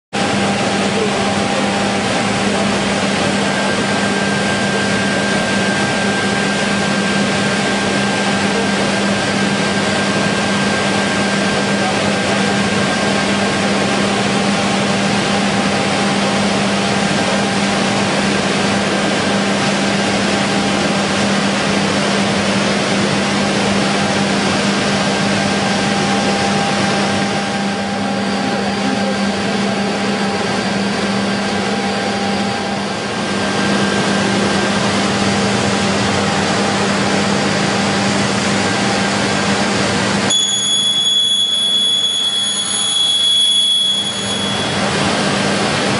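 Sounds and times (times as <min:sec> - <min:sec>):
woodworking machinery running: 0:00.2 - 0:45.9.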